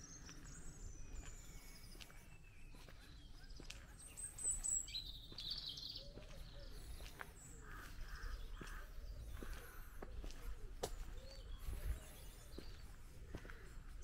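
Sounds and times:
songbirds chirping and warbling: 0:00.0 - 0:14.0
footsteps on gravel: 0:00.2 - 0:14.0
crow cawing: 0:07.6 - 0:09.9.

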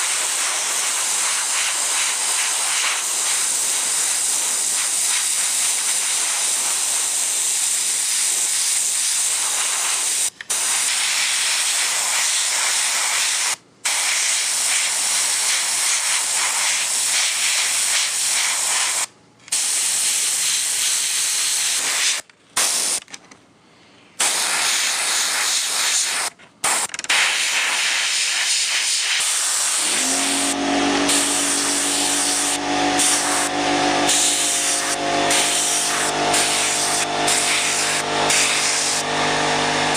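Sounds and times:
airbrush hissing: 0:00.0 - 0:23.0, 0:24.2 - 0:39.2
machine hum: 0:29.8 - 0:39.9.

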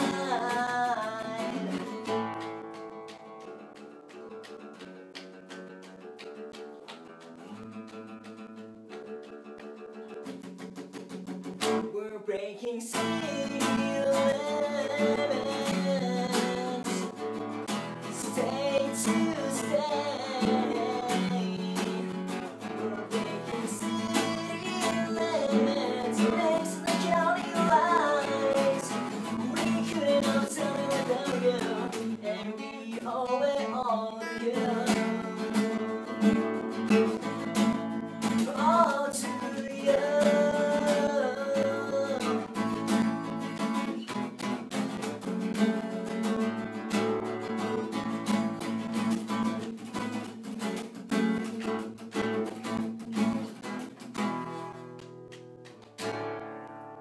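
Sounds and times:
young man singing: 0:00.0 - 0:02.1, 0:11.7 - 0:17.3, 0:18.0 - 0:36.1, 0:38.3 - 0:43.0
acoustic guitar strumming: 0:00.0 - 0:12.2, 0:12.9 - 0:57.0.

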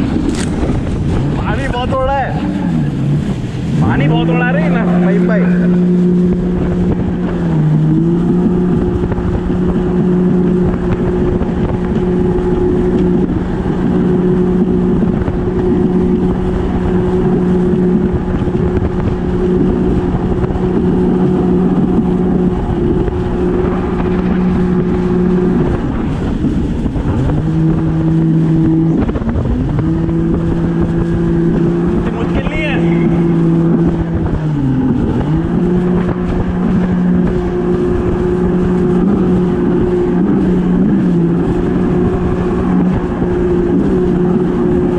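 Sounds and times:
jet ski engine running: 0:00.0 - 0:44.9
water noise: 0:00.0 - 0:44.9
wind: 0:00.0 - 0:44.9.

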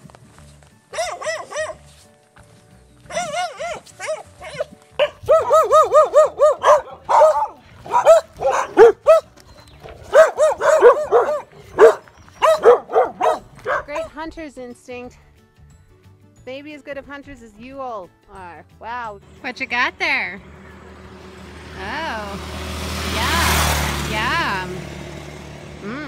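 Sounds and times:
dogs barking: 0:00.9 - 0:01.9, 0:03.0 - 0:14.2.

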